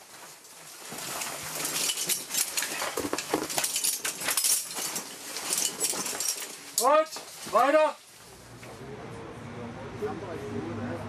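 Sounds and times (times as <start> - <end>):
metal hardware clinking and scraping: 0.1 - 8.1.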